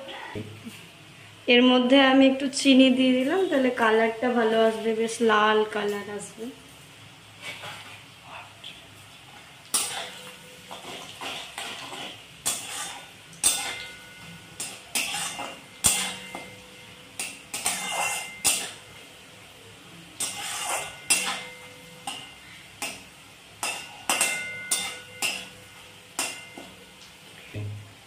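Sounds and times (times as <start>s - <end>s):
metal spatula scraping a pan: 7.4s - 8.5s, 9.7s - 19.0s, 20.2s - 26.8s.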